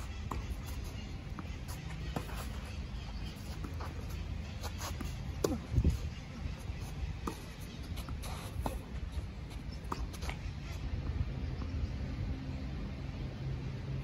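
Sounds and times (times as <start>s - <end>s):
tennis ball struck by rackets: 0.0s - 5.9s
tennis ball bouncing on clay: 0.0s - 11.2s.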